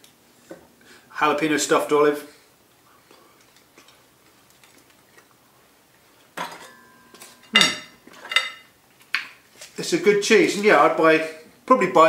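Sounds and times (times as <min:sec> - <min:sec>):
knife clinking on plate: 0:06.4 - 0:08.7.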